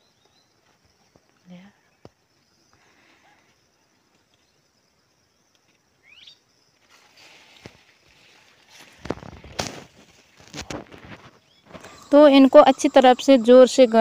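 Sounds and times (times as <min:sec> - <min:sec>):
high insect buzz: 0:00.6 - 0:14.0
leaves rustling: 0:06.8 - 0:12.0.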